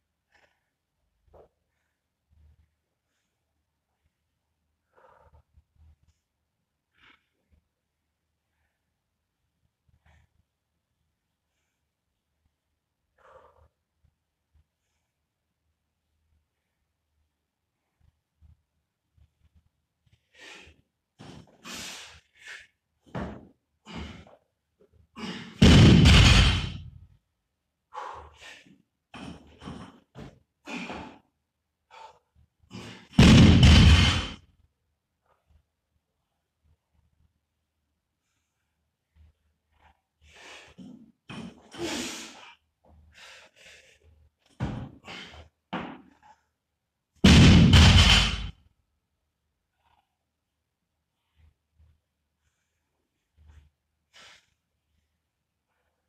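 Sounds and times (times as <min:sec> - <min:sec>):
barbell slamming onto rubber floor: 0:25.6 - 0:26.8, 0:33.2 - 0:34.4, 0:47.3 - 0:48.5
weightlifter breathing and grunting: 0:30.6 - 0:31.2.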